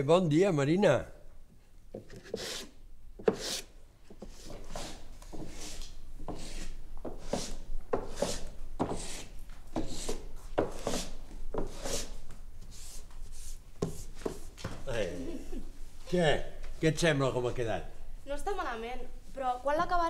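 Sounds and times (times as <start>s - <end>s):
sanding block rasping on wood: 2.4s - 2.7s, 3.3s - 3.7s, 4.7s - 12.2s.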